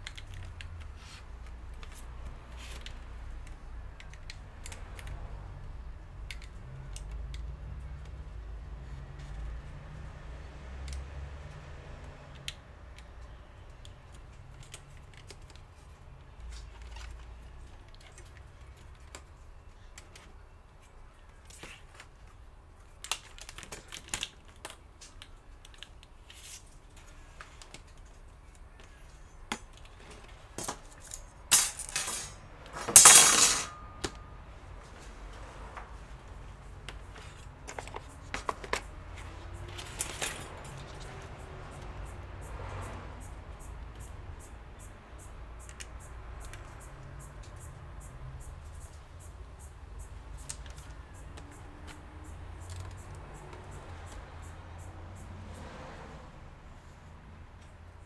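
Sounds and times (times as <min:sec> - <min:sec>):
small clicks and taps of parts: 0:00.0 - 0:08.3, 0:10.8 - 0:20.4, 0:23.0 - 0:31.2, 0:43.2 - 0:54.8.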